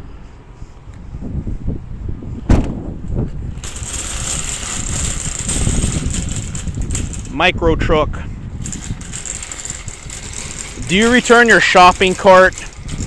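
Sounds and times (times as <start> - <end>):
shopping cart rattling on asphalt: 3.5 - 7.5, 8.6 - 13.0.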